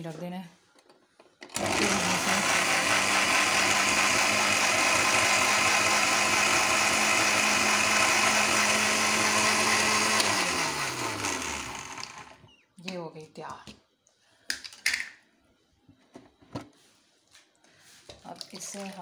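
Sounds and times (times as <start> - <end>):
mixer grinder motor whine: 1.5 - 12.5.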